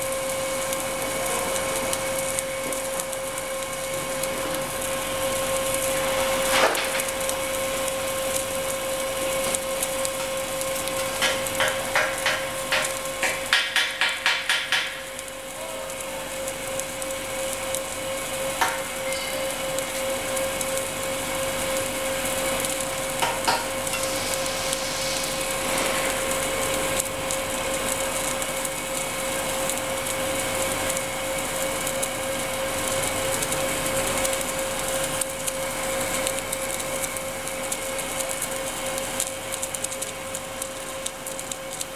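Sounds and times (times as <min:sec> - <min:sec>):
welding machine humming: 0:00.0 - 0:41.9
hiss: 0:05.9 - 0:16.2, 0:21.8 - 0:31.0
sharp clicks and knocks: 0:11.2 - 0:15.0.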